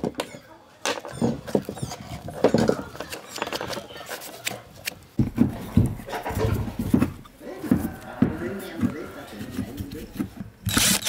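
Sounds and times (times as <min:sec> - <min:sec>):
small metal clicks and scrapes: 0:10.7 - 0:11.0.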